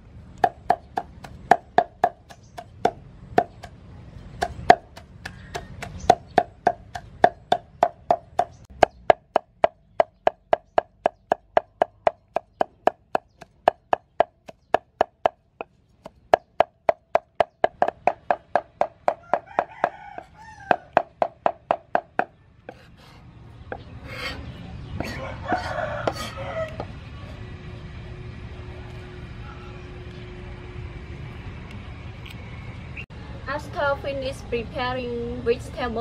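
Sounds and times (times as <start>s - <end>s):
cleaver chopping on wooden block: 0.4s - 3.8s, 4.4s - 22.9s
rooster crowing: 19.0s - 21.2s, 25.0s - 27.5s.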